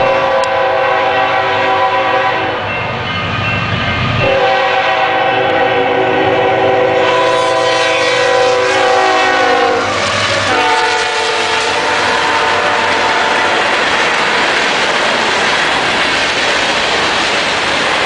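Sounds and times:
locomotive air horn chord: 0.0 - 2.7, 4.2 - 13.7
freight cars rumbling: 8.2 - 18.0.

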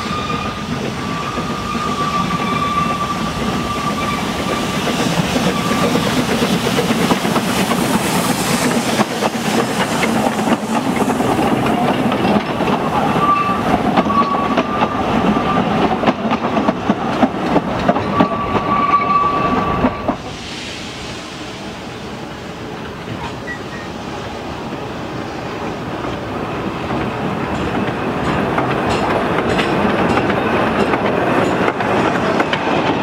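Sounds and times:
high wheel squeals: 0.0 - 6.1, 12.8 - 15.8, 18.0 - 20.2, 23.3 - 24.0
train wheels clicking on rails: 0.0 - 22.0, 22.6 - 33.0.

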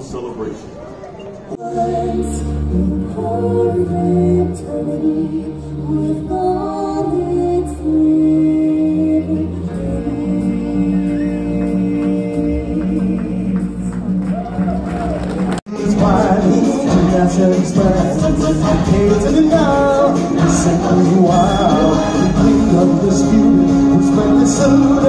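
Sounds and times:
person singing into microphone: 1.6 - 14.1, 15.7 - 25.0
musical accompaniment: 1.6 - 25.0.

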